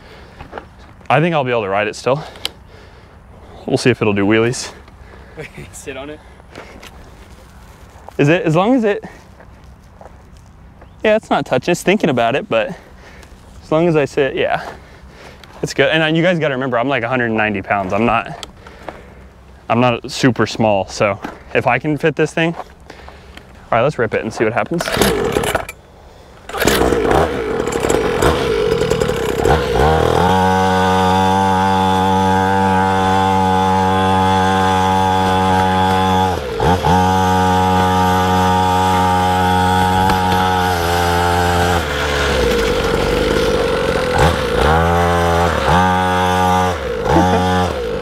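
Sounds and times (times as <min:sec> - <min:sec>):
two-stroke pit bike engine: 0:24.5 - 0:25.8, 0:26.4 - 0:48.0.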